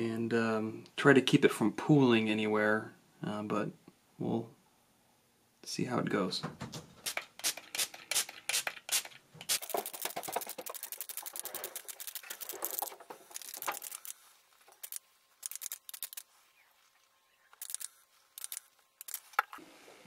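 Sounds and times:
spray bottle spritzing: 0:07.0 - 0:16.3.

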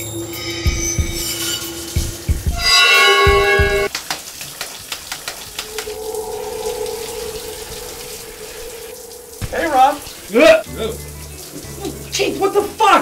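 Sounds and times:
dramatic horror music: 0:00.0 - 0:03.9, 0:05.4 - 0:12.1
shower running: 0:00.0 - 0:13.0
deep drum hits: 0:09.3 - 0:10.4.

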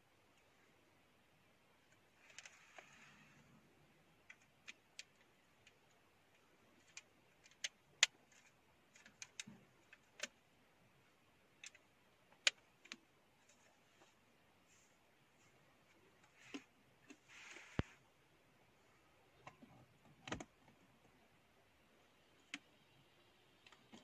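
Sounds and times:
soft rustle: 0:01.9 - 0:03.7, 0:13.3 - 0:18.2
small clicks and taps: 0:04.2 - 0:10.4, 0:22.4 - 0:22.7, 0:23.6 - 0:24.0.

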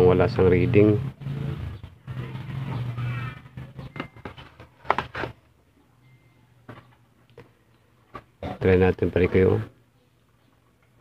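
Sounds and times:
passing vehicle engine hum: 0:00.0 - 0:04.6.

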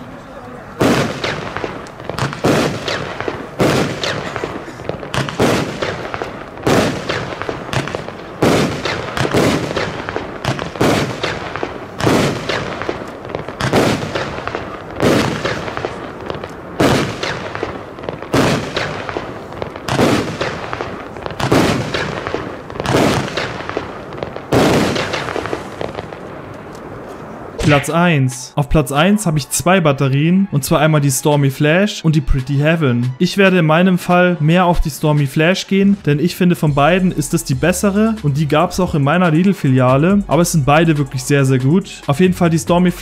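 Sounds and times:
firework crackle: 0:00.0 - 0:28.1
firework bangs: 0:00.7 - 0:28.4.

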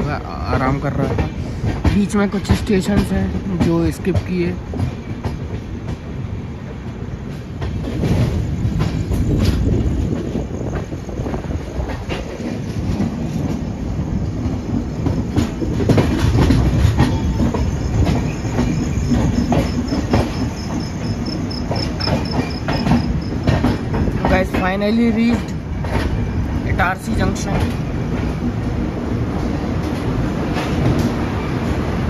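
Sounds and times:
insects chirping: 0:00.0 - 0:32.0
train rumble: 0:00.0 - 0:32.0
train wheels clicking over joints: 0:00.0 - 0:32.0.

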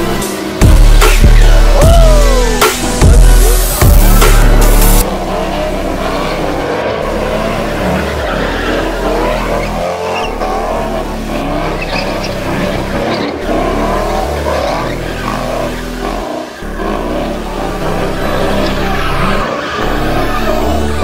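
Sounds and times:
car engine revving: 0:00.0 - 0:21.0
tyres squealing: 0:00.9 - 0:16.7.

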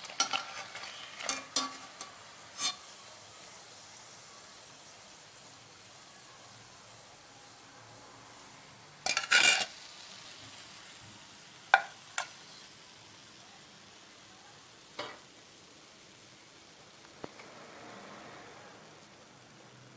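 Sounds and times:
metal strainer scraping metal pan: 0:00.0 - 0:03.0, 0:09.0 - 0:09.8.

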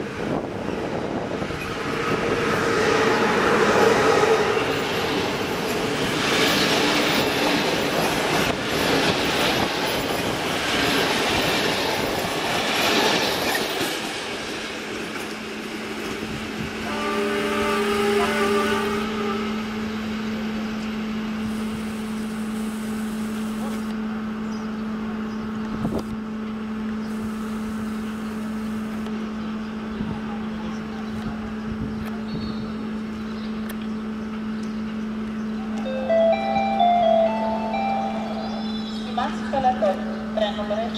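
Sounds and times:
train horn: 0:02.2 - 0:04.8, 0:16.8 - 0:20.0
train wheels clattering over rails: 0:03.4 - 0:16.6.

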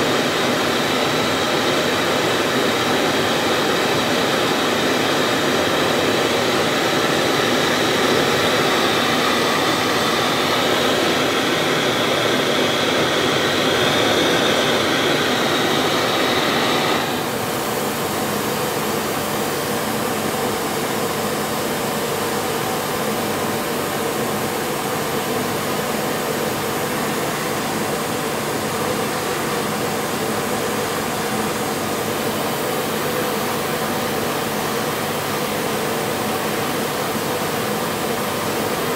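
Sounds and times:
gas torch flame hissing: 0:07.0 - 0:17.7.

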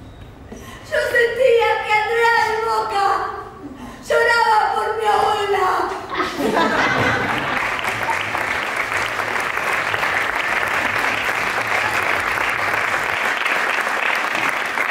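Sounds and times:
audience applauding: 0:06.8 - 0:14.9.

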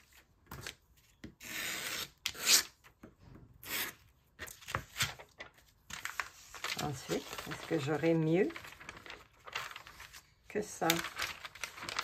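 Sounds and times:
magazine pages turning: 0:04.4 - 0:12.0.

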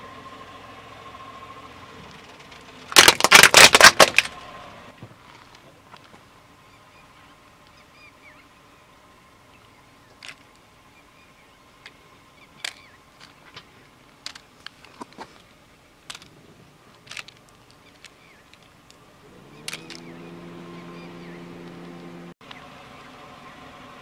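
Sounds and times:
car engine starting and idling: 0:00.0 - 0:05.6, 0:06.2 - 0:24.0
plastic toy cars clicking on asphalt: 0:02.1 - 0:04.4, 0:05.2 - 0:06.2, 0:10.1 - 0:10.7, 0:11.8 - 0:20.1.

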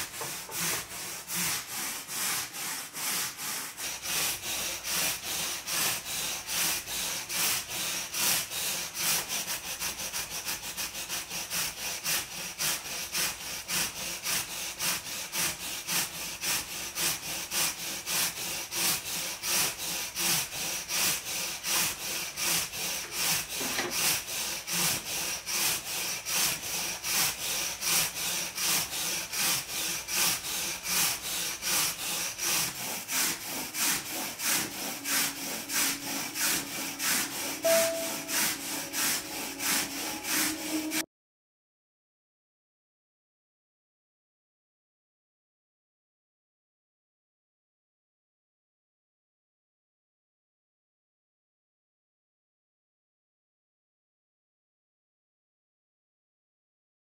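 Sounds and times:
wire brush scrubbing paper: 0:00.0 - 0:41.0.

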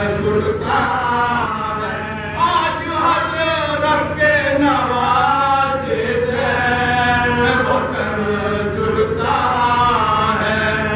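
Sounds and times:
men chanting a lament: 0:00.0 - 0:10.9.

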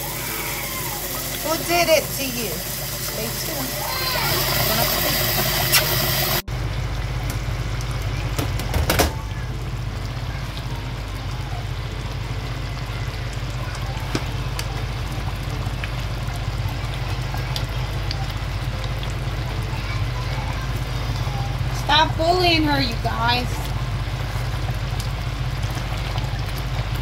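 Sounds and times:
tap water running into pot: 0:00.0 - 0:27.0
sauce simmering with small pops: 0:23.6 - 0:27.0.

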